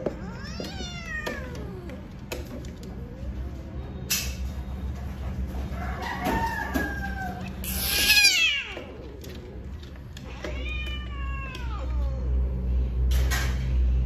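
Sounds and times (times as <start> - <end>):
cat yowling: 0.2 - 2.1, 6.4 - 9.2, 10.2 - 12.4.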